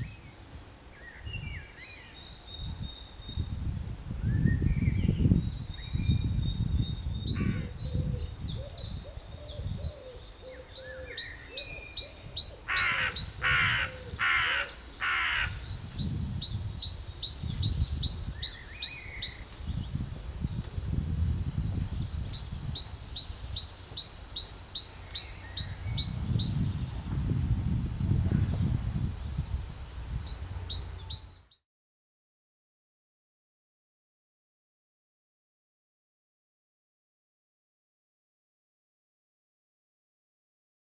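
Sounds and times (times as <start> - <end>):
low wind rumble: 0.0 - 31.4
harsh bird calls: 9.5 - 15.9
small bird trilling: 12.2 - 15.6.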